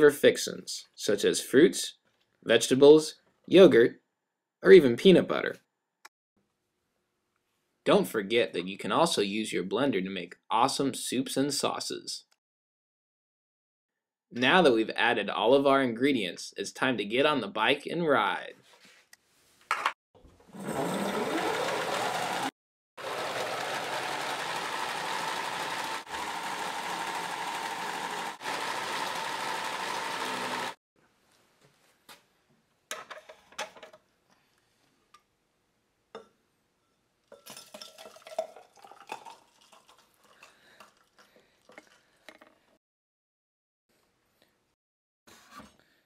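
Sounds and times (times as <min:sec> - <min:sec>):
blender whirring: 0:20.5 - 0:30.8
glass jar clinking: 0:36.9 - 0:41.0
smoothie being poured: 0:37.4 - 0:42.1.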